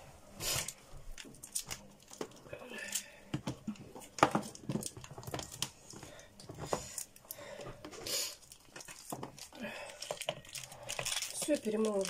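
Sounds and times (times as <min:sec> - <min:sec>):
cord rustle: 0:03.9 - 0:12.0.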